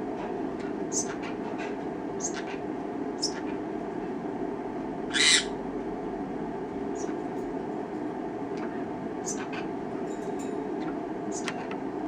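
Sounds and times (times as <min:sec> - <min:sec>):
low room hum: 0:00.0 - 0:12.0
parrot high-pitched call: 0:05.1 - 0:05.6.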